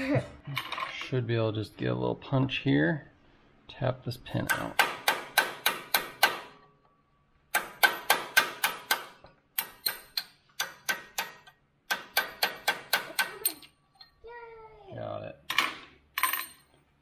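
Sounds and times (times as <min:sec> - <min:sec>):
hammer tapping steel punch: 0:04.4 - 0:06.8, 0:07.5 - 0:13.7.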